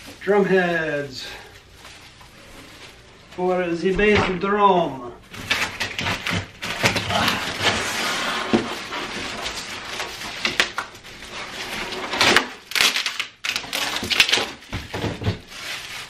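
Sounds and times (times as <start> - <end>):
cardboard scraping and rustling: 5.3 - 12.6.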